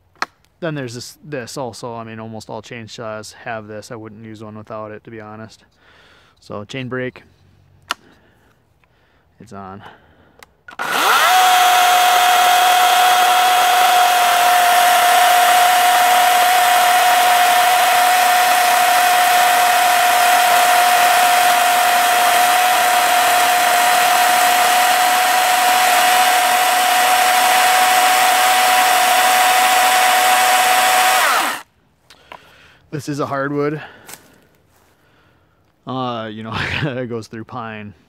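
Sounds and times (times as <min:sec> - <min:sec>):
chain cutting through log: 0:10.7 - 0:31.6
chainsaw whining: 0:10.7 - 0:31.7.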